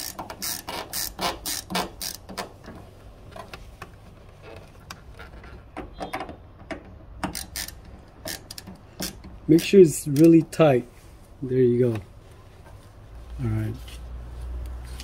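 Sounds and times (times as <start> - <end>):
ratcheting screwdriver clicking: 0.0 - 2.5, 7.2 - 10.5.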